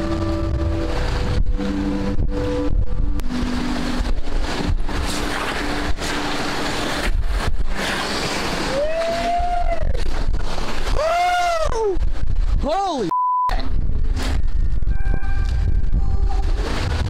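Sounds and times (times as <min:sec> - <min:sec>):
whitewater rapids rushing: 0:00.0 - 0:11.8
wind buffeting microphone: 0:00.0 - 0:12.7, 0:13.6 - 0:17.0.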